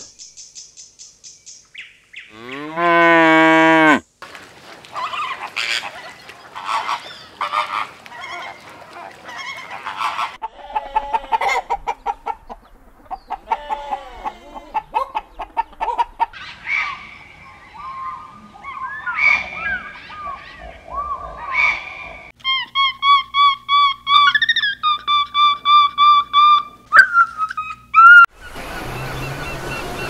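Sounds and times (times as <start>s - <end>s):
cow mooing: 2.3s - 4.0s
poultry calls and clucks: 4.9s - 22.3s.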